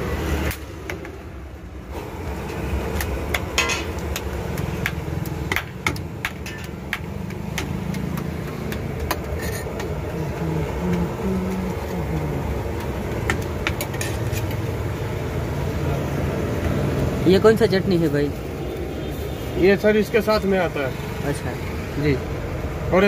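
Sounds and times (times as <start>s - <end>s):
low engine rumble: 1.8s - 17.2s.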